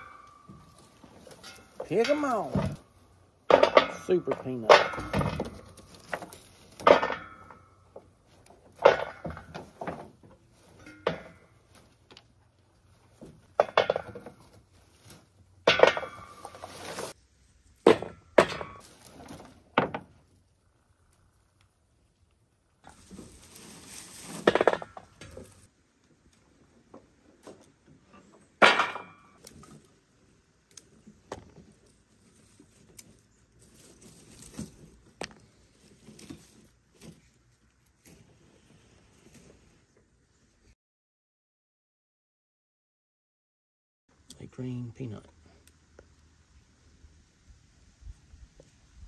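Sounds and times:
rustle of leafy vines: 0:16.2 - 0:17.8, 0:18.8 - 0:22.1, 0:22.8 - 0:26.4, 0:29.4 - 0:39.9.

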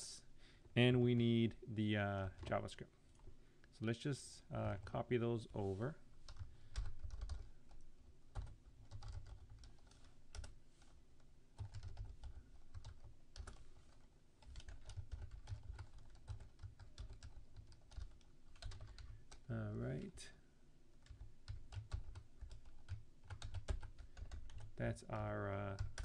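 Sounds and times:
typing on computer keyboard: 0:06.3 - 0:10.6, 0:11.6 - 0:13.6, 0:14.4 - 0:19.5, 0:21.0 - 0:26.0.

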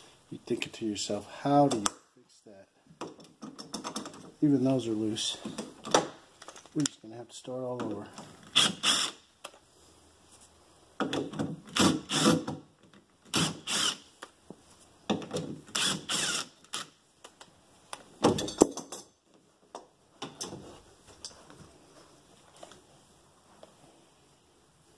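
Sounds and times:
impact driver bursts: 0:08.5 - 0:09.2, 0:11.7 - 0:12.6, 0:13.3 - 0:14.0, 0:15.7 - 0:16.9.

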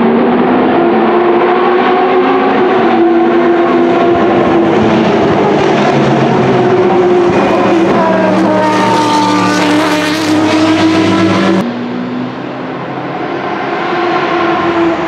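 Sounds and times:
racing car engine at high revs: 0:00.0 - 0:15.0.

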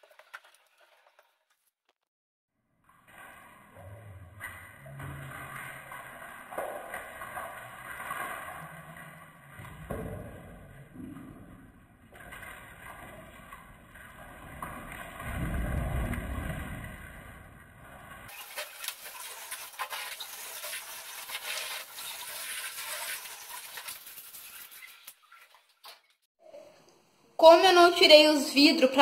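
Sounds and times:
cloth scrubbing plastic: 0:18.3 - 0:26.1.

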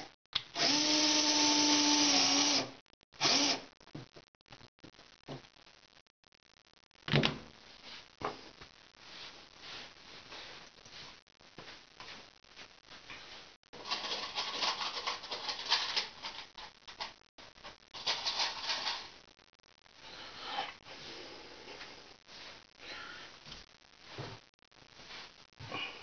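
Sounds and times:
rustling and clattering: 0:13.1 - 0:19.2.

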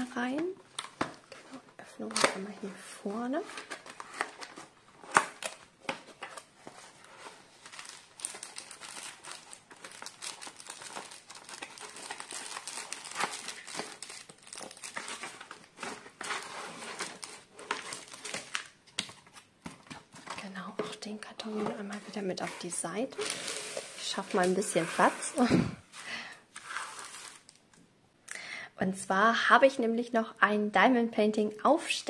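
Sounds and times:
plastic bags crinkling: 0:07.1 - 0:18.8.

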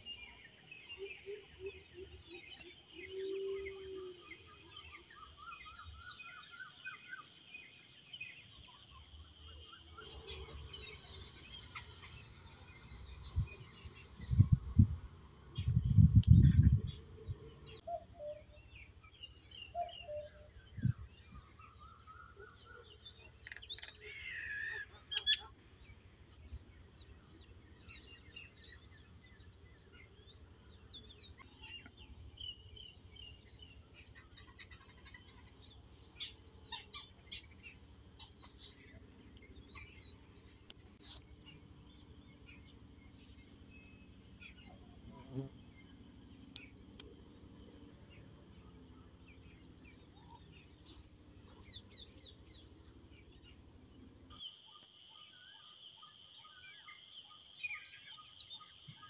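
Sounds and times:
insects trilling: 0:00.0 - 0:59.0
bird chirps: 0:15.6 - 0:47.0.

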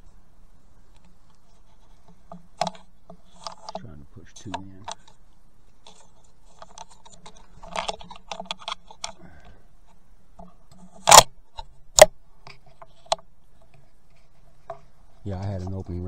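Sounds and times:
rifle handling clicks and rustles: 0:00.9 - 0:14.9
sharp loud rifle clicks: 0:11.0 - 0:12.2.

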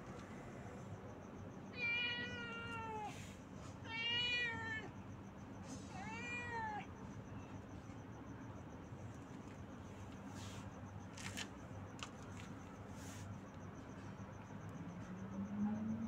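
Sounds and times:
cat meowing: 0:01.7 - 0:03.2, 0:03.8 - 0:04.9, 0:05.9 - 0:06.9.

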